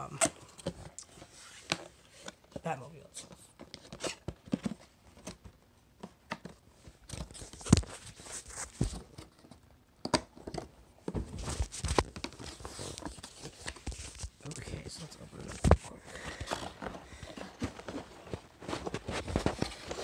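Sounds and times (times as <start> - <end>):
packaging rustling and tearing: 7.0 - 9.3, 11.4 - 14.6, 15.4 - 20.0.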